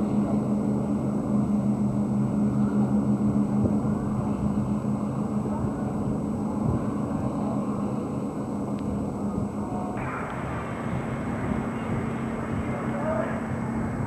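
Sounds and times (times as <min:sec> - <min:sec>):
boat engines droning: 0:00.0 - 0:14.0
rushing water noise: 0:10.0 - 0:14.0.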